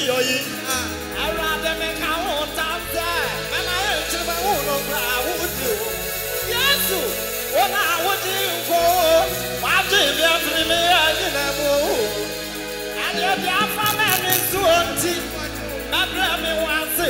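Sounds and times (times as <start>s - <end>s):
man singing into microphone: 0.0s - 5.9s, 13.0s - 17.0s
gospel band with bass: 0.0s - 17.0s.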